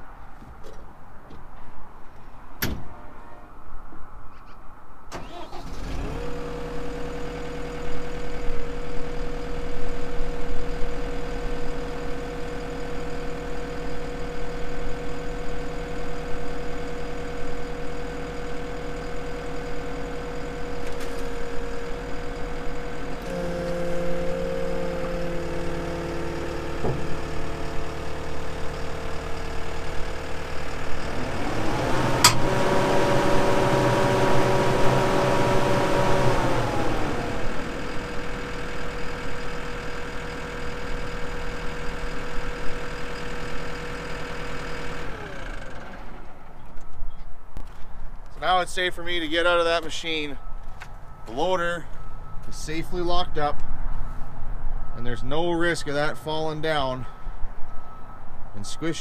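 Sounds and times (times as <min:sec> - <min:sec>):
diesel engine starting and idling: 0:05.1 - 0:59.0
engine revving: 0:05.2 - 0:08.1, 0:20.1 - 0:39.9.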